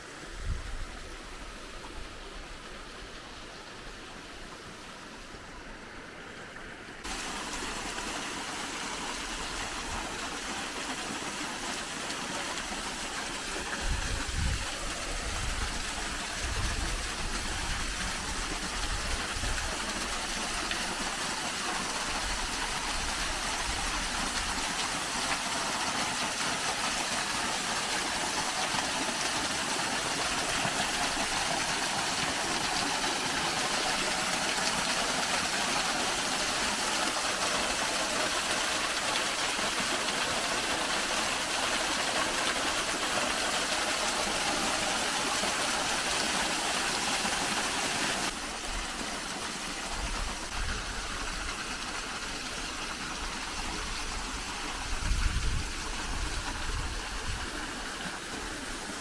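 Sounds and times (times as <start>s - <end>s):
small waterfall rushing: 0.0s - 59.0s
wind rumble on microphone: 13.7s - 19.7s, 54.8s - 57.6s.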